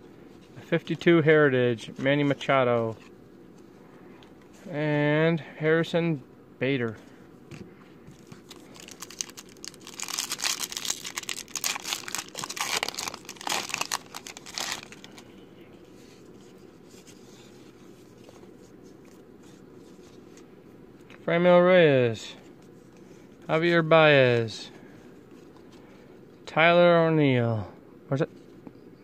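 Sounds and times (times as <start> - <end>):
foil wrapper crinkling: 8.2 - 15.3.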